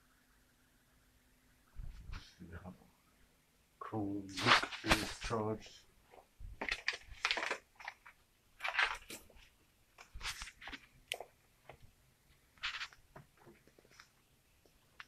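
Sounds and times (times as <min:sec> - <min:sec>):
rustles and scrapes of objects: 0:01.8 - 0:02.4, 0:04.3 - 0:15.0.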